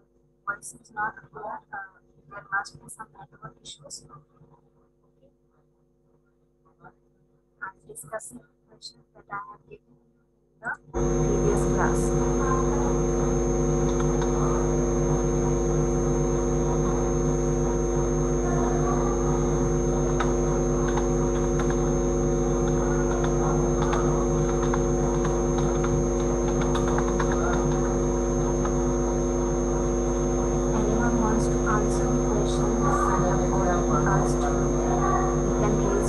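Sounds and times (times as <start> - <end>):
electrical mains hum and buzz: 0.0 - 36.0
thin high whine: 10.7 - 36.0.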